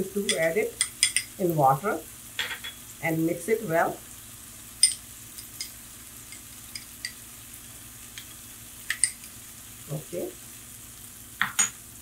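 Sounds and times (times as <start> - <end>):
spoon clinking against glass: 0.8 - 1.3, 2.4 - 2.8, 4.8 - 5.0.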